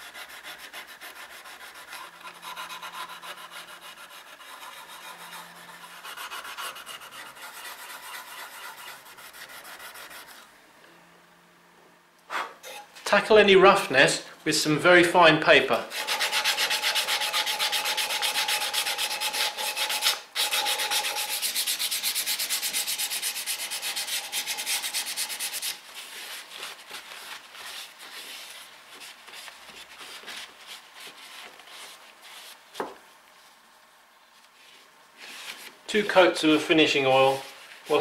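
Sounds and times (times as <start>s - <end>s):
sandpaper rubbing on wood: 0.0s - 10.4s, 15.9s - 32.6s.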